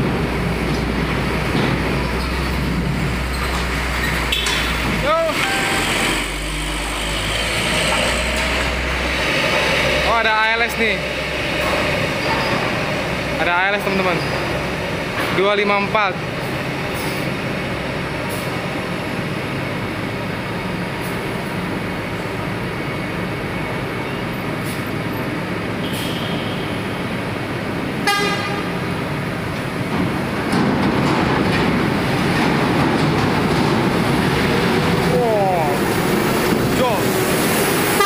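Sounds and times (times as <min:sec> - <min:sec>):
diesel truck engines droning: 0:00.0 - 0:38.0
truck horn toot: 0:05.2 - 0:06.3, 0:25.8 - 0:27.0, 0:28.0 - 0:28.8.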